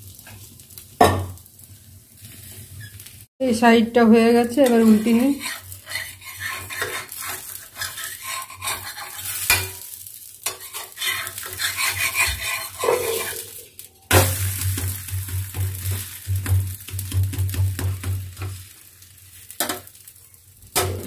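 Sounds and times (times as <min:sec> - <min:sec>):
pancake sizzling on a pan: 0:00.0 - 0:03.3, 0:04.1 - 0:20.8
spatula scraping a pan: 0:04.4 - 0:13.6.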